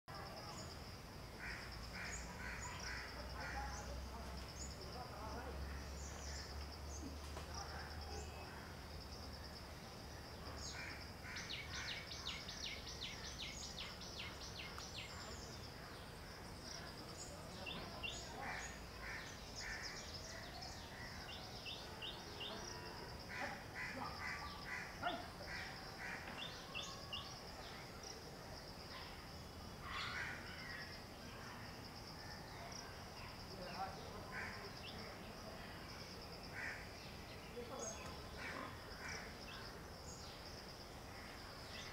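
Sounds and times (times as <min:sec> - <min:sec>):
high insect drone: 0:00.1 - 0:41.9
birds calling and chirping: 0:00.4 - 0:07.4, 0:08.1 - 0:28.2.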